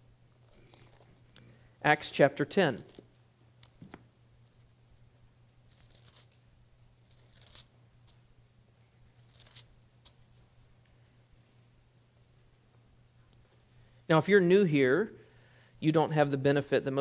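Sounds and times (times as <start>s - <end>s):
low steady hum: 0.0s - 17.0s
paper pages rustling: 5.7s - 6.4s, 7.1s - 7.7s.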